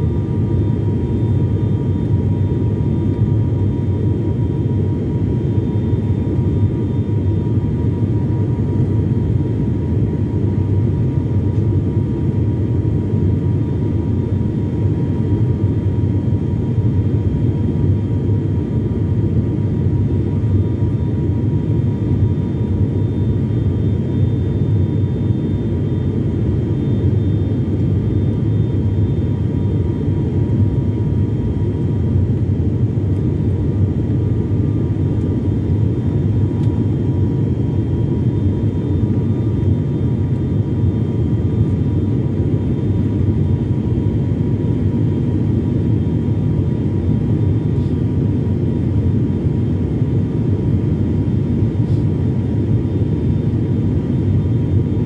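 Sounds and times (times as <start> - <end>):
turboprop engines droning in cabin: 0.0 - 55.0
faint whining tones: 13.0 - 50.0.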